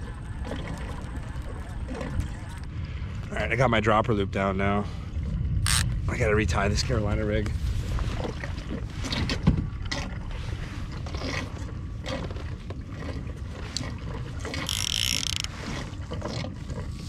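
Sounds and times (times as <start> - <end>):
fishing reel gears clicking: 5.6 - 5.9, 14.6 - 15.5.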